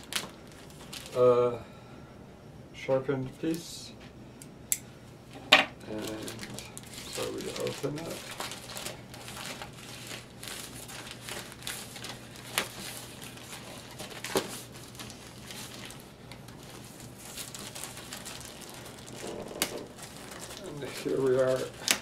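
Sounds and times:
plastic mailer bag tearing: 0:00.0 - 0:01.3, 0:05.8 - 0:22.0.

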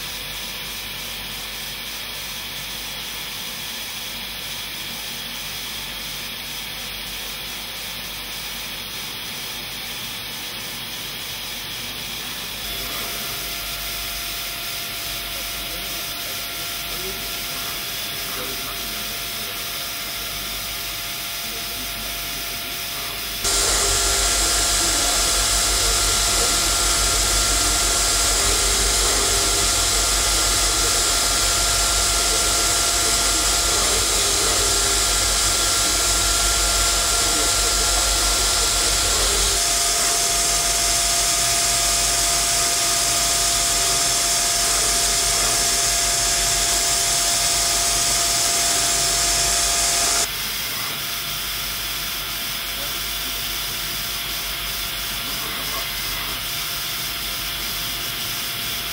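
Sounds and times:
grinding machine hissing: 0:00.0 - 0:58.9
faint steady whine: 0:12.6 - 0:50.3.

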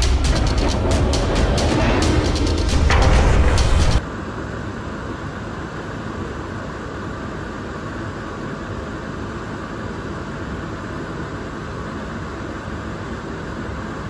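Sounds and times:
extraction fan rush of air: 0:00.0 - 0:04.7.

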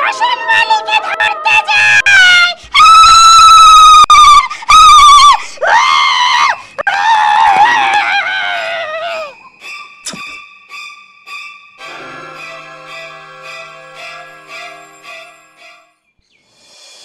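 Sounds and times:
woman screaming: 0:00.9 - 0:09.3.

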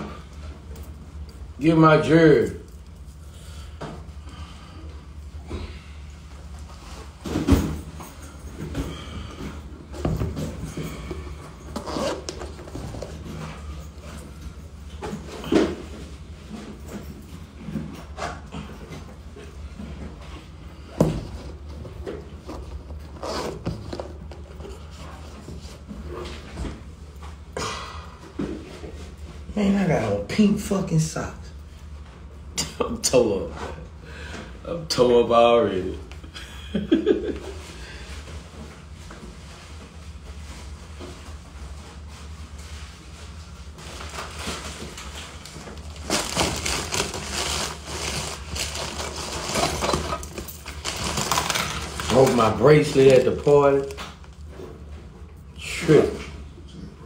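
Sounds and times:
low room hum: 0:00.0 - 0:57.0
plastic mailer bag crinkling: 0:43.9 - 0:54.0.

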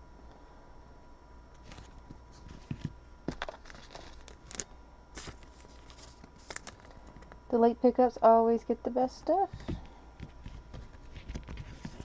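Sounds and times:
cards rustling: 0:01.6 - 0:07.4, 0:09.6 - 0:12.0.

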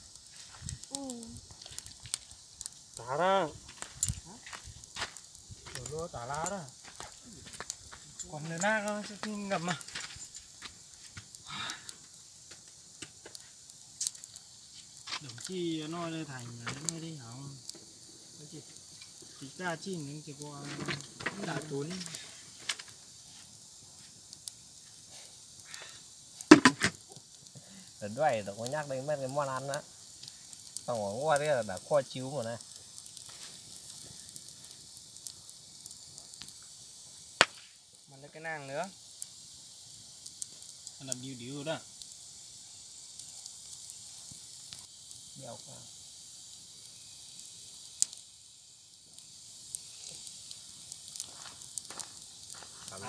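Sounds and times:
campfire crackling: 0:00.0 - 0:53.0
fire popping: 0:00.0 - 0:53.0
steady high hiss: 0:00.0 - 0:53.0
loud knocks or pops: 0:26.5 - 0:27.0, 0:37.4 - 0:37.8.

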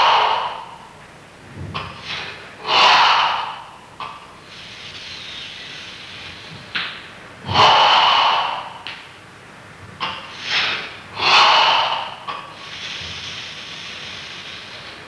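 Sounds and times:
forceful hissing exhalations: 0:01.9 - 0:03.7, 0:07.5 - 0:08.8, 0:10.2 - 0:14.8.

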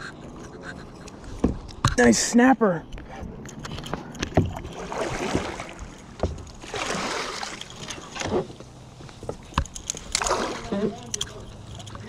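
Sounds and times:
water splashing against kayak hull: 0:04.3 - 0:08.7, 0:10.0 - 0:11.2.

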